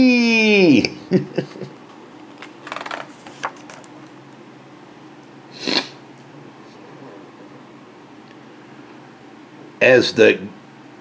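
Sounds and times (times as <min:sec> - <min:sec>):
book pages rustling: 0:02.3 - 0:04.2.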